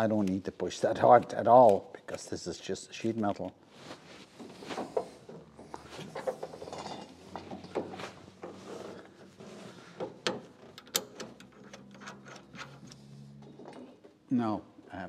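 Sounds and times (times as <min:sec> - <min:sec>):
metallic clicks and rattles: 0:10.2 - 0:14.2.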